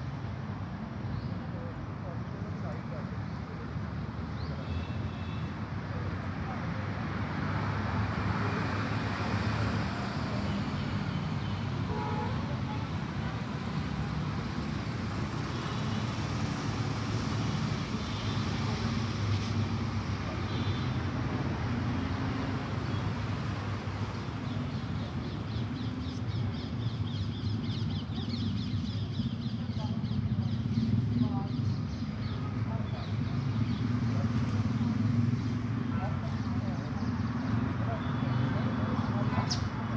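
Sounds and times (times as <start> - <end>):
road traffic rumble: 0.0 - 39.9.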